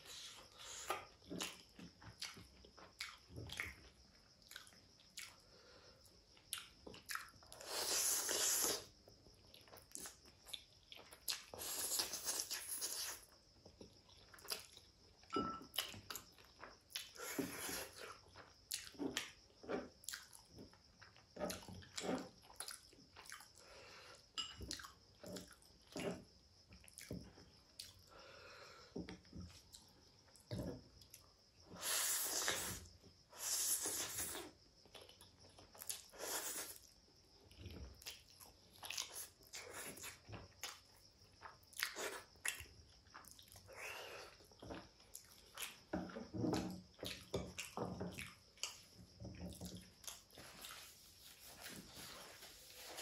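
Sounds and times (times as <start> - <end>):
slurping noodles: 7.6 - 8.9
wet chewing: 44.5 - 46.3.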